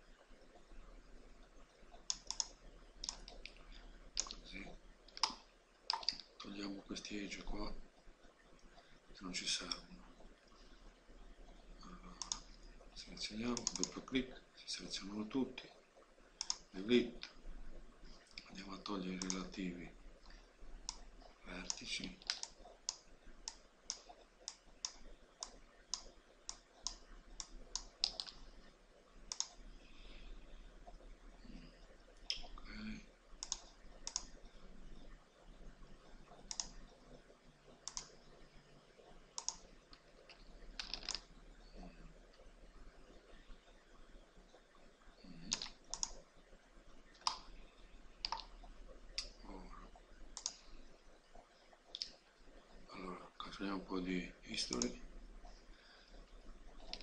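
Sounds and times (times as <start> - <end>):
computer mouse clicking: 1.4 - 6.5, 9.6 - 9.9, 11.8 - 14.2, 16.4 - 17.4, 18.2 - 19.5, 20.2 - 28.7, 29.3 - 29.7, 32.1 - 35.2, 36.0 - 38.4, 39.4 - 42.4, 45.4 - 46.2, 47.1 - 47.6, 48.2 - 49.4, 50.3 - 50.7, 54.6 - 55.0, 56.2 - 57.0.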